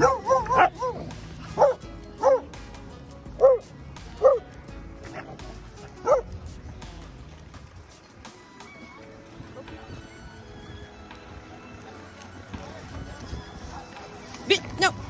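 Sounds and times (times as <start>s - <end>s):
dog yipping: 0.0s - 1.0s, 1.6s - 2.5s, 3.4s - 3.6s, 4.2s - 4.4s, 6.0s - 6.3s.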